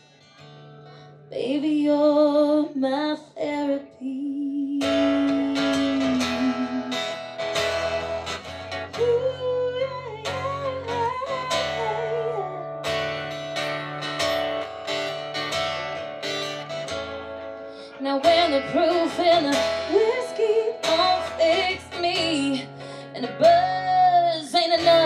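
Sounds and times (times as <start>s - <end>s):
acoustic guitar strumming: 0.0s - 1.3s, 4.7s - 25.0s
bass line: 4.9s - 12.7s.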